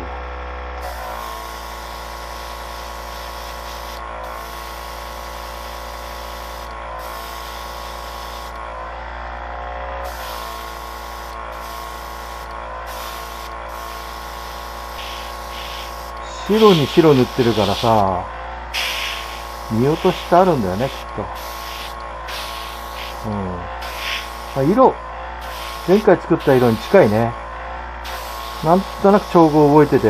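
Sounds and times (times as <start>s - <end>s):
small motor humming: 0.0s - 30.0s
spray paint hissing: 0.8s - 8.6s, 10.0s - 18.1s, 18.7s - 27.3s, 28.0s - 30.0s.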